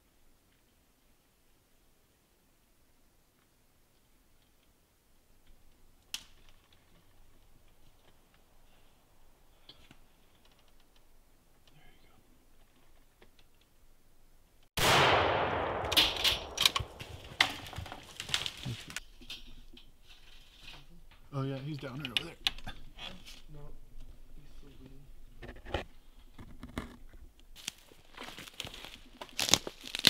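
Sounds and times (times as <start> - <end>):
rifle shot: 14.8 - 17.6
sharp clicks and knocks: 15.8 - 18.5.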